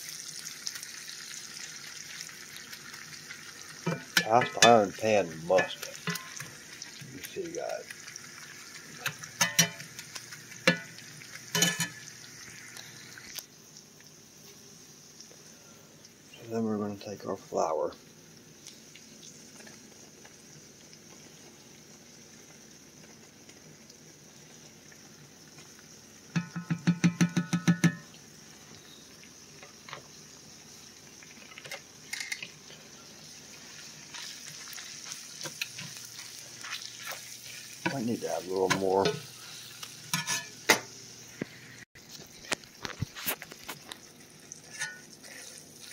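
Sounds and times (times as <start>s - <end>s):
meat sizzling in butter: 0.0s - 45.9s
crackles and pops: 0.1s - 14.2s, 17.9s - 45.9s
metal spatula knocking pan: 5.6s - 6.4s, 9.4s - 9.9s, 26.4s - 28.1s.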